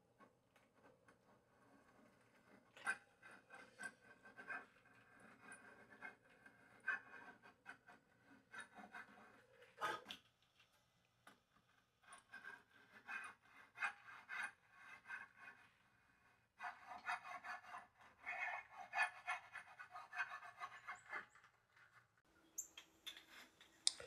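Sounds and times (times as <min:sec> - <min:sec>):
hand saw cutting wood: 0:16.6 - 0:21.3.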